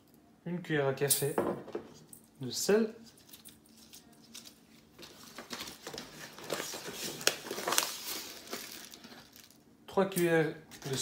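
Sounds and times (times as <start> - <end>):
paper bag crinkling: 3.2 - 9.6.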